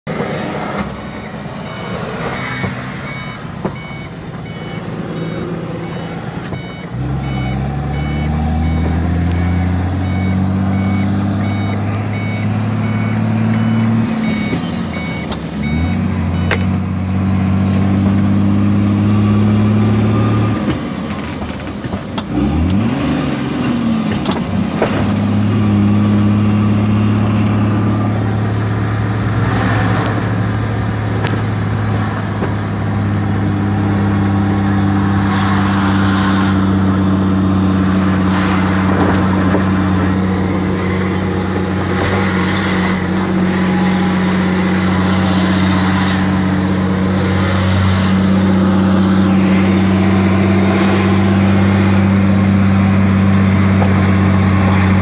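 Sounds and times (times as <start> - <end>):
truck engine shifting gears: 0.0 - 55.0
electronic beeping: 0.9 - 16.8.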